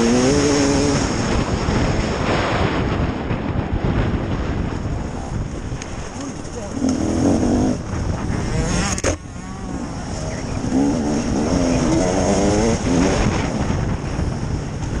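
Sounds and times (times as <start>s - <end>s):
motorcycle engine revving: 0.0s - 2.6s, 6.0s - 15.0s.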